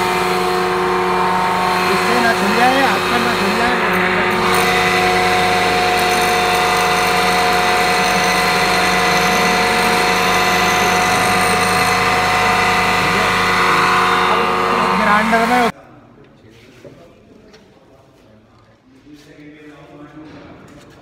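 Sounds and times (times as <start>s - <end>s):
bench grinder motor hum: 0.0s - 15.7s
metal grinding hiss: 0.0s - 15.7s.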